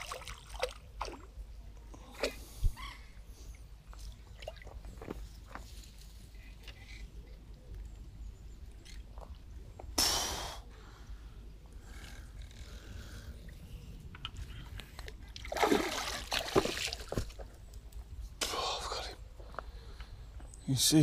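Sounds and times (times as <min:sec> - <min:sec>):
pond water splashing: 0:00.0 - 0:01.5, 0:04.0 - 0:05.2, 0:15.1 - 0:17.4.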